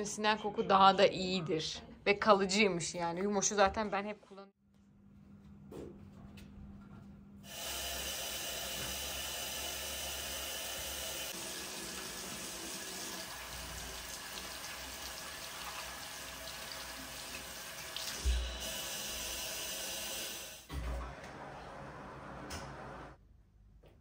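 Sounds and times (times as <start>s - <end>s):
tap water running into sink: 7.6s - 20.2s.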